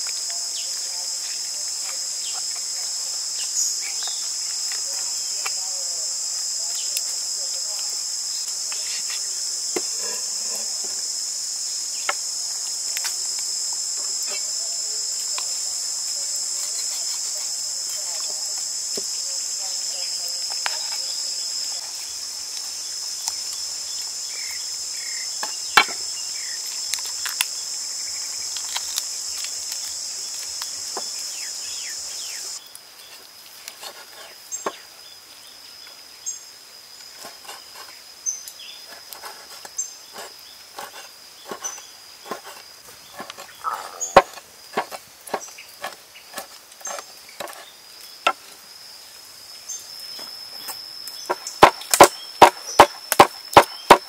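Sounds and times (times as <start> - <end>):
insects shrilling: 0.0 - 54.0
cleaver chopping on wooden board: 25.4 - 26.0, 43.2 - 47.6, 51.3 - 54.0.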